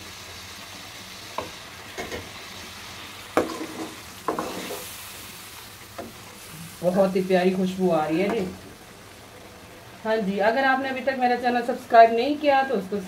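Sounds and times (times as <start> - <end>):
sauce sizzling in a wok: 0.0 - 13.0.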